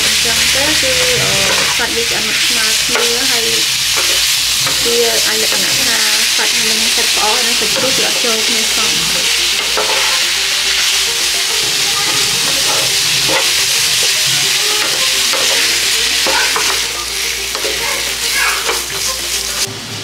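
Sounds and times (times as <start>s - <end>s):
meat sizzling in a pan: 0.0s - 19.7s
wooden spatula scraping pan: 0.8s - 10.9s.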